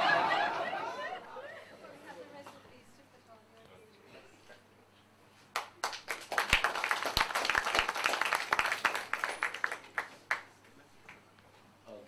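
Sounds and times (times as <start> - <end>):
audience applauding: 5.6 - 11.2.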